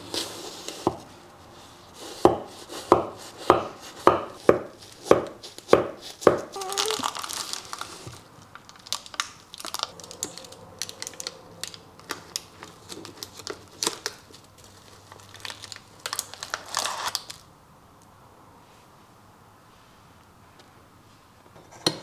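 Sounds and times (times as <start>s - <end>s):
baking paper crinkling: 3.8s - 17.5s.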